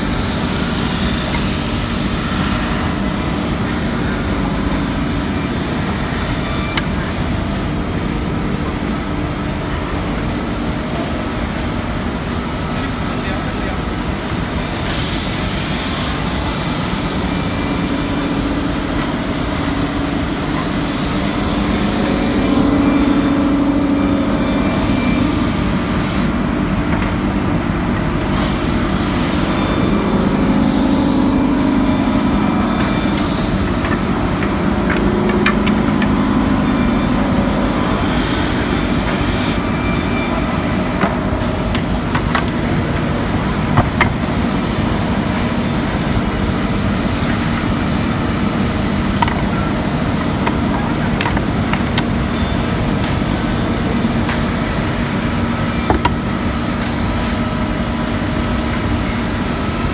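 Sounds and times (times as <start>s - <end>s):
polishing machine humming: 28.3s - 59.8s.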